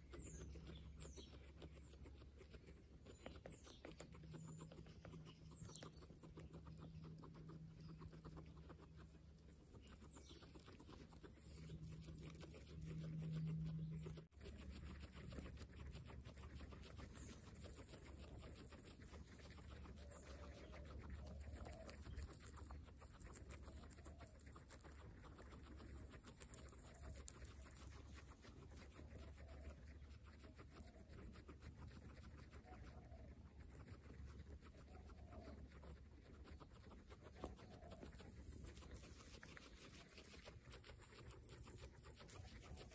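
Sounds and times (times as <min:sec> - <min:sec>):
guinea pigs chewing grass: 0:00.0 - 0:42.9
low steady hum: 0:01.8 - 0:24.9.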